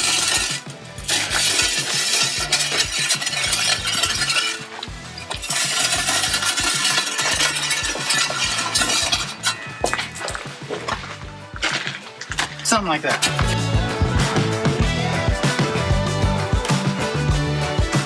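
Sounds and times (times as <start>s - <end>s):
shovel scraping stony soil: 0.0s - 13.8s
background music with steady beat: 0.0s - 18.0s.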